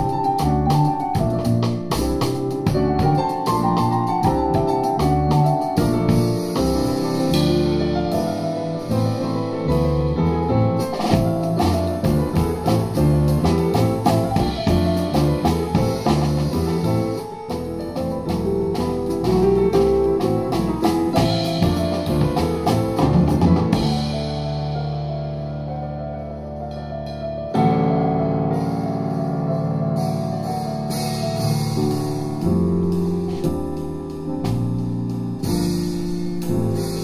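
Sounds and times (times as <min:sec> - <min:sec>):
drum kit with busy cymbals: 0:00.0 - 0:25.6, 0:26.7 - 0:37.0
double bass: 0:00.0 - 0:37.0
piano: 0:00.0 - 0:37.0.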